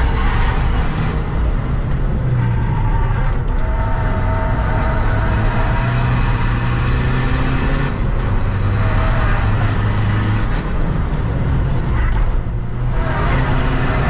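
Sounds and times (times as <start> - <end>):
tyre and road noise: 0.0 - 14.0.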